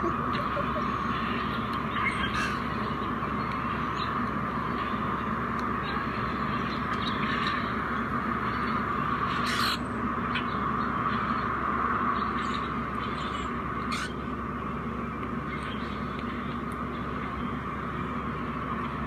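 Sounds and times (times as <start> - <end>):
bird squawks: 0.0 - 3.0, 9.3 - 10.6, 12.4 - 14.2
bird calls through speakers: 0.0 - 3.1, 13.9 - 14.2.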